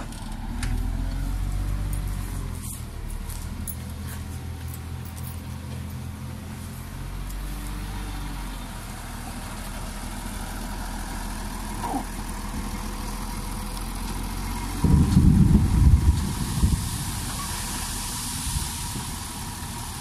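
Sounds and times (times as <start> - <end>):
diesel truck engine running: 0.0 - 20.0
dirt pouring out: 13.8 - 20.0
loud low rumble: 14.6 - 19.1.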